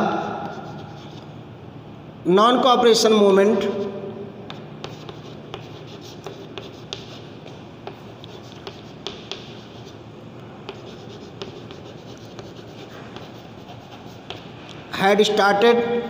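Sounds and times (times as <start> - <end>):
chalk writing on chalkboard: 0.4 - 1.3, 3.6 - 10.0, 10.7 - 14.8.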